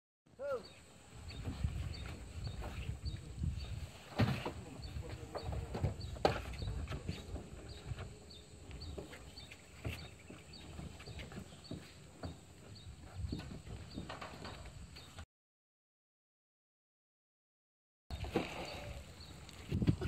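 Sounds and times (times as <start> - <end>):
men hauling rope: 0.4 - 15.2, 18.1 - 20.0
feet shuffling on wooden planks: 1.3 - 15.2.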